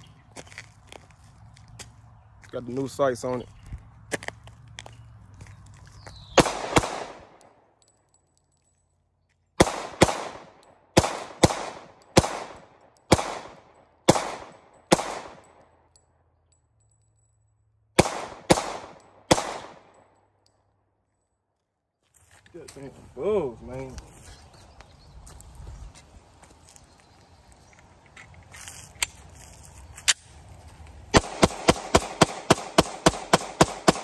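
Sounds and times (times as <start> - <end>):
pistol shots with echo: 6.3 - 7.6, 9.6 - 15.8, 18.0 - 20.2, 31.1 - 34.0.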